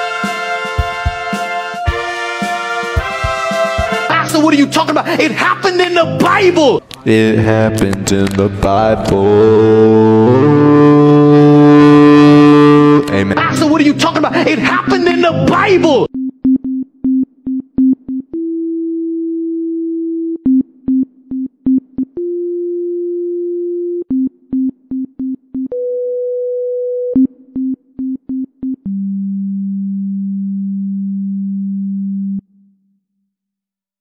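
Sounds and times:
synthesizer sine-wave tones: 28.8 - 32.7.

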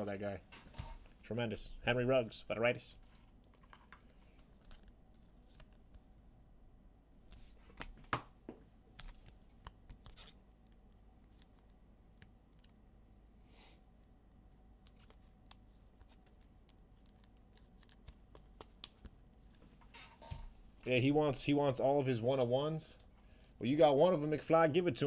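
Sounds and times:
plastic card sleeve rustling: 3.0 - 6.0, 8.9 - 12.8, 14.5 - 19.6.

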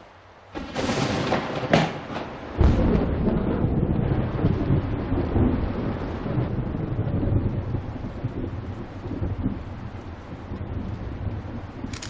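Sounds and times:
rain: 0.0 - 12.0
thunder cracks: 0.5 - 11.9
rumble of thunder: 0.5 - 12.0.

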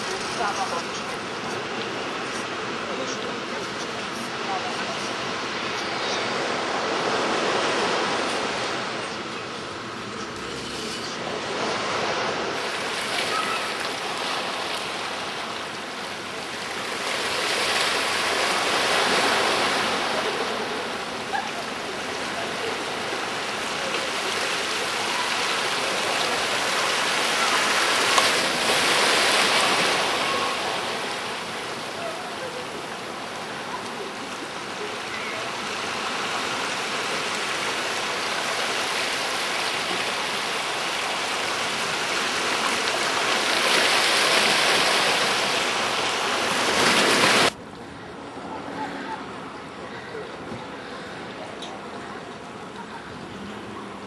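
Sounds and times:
surf washing against a breakwater: 0.0 - 49.6.

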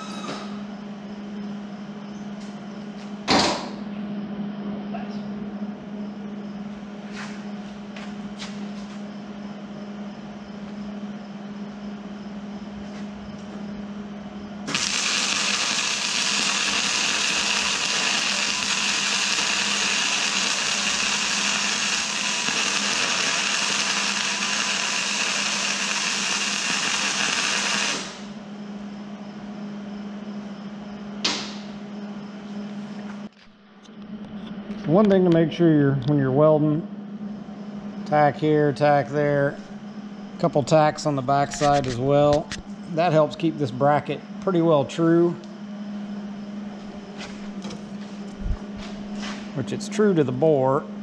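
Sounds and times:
steady low hum: 0.3 - 51.0
welding arc crackling and hissing: 14.7 - 28.4.

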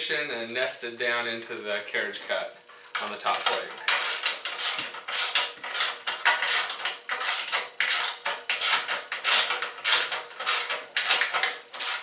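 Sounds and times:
ratchet wrench clicking: 3.9 - 12.0.

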